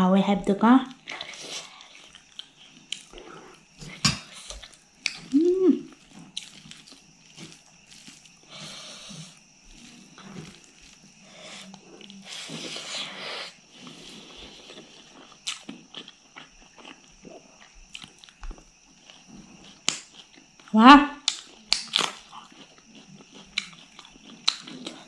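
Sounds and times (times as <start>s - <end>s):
chewing and wet mouth sounds: 1.0s - 25.0s
hand squishing rice: 5.9s - 11.4s.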